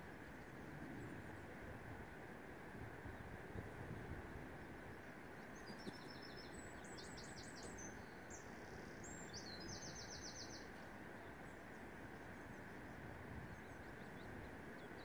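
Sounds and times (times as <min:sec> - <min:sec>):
steady background hiss: 0:00.0 - 0:15.0
songbird trilling: 0:05.4 - 0:11.8.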